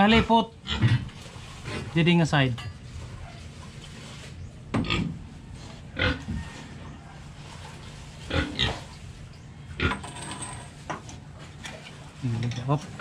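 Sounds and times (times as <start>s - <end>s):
pigs grunting: 0.0s - 2.0s, 5.8s - 7.1s, 8.2s - 9.0s, 9.7s - 10.0s.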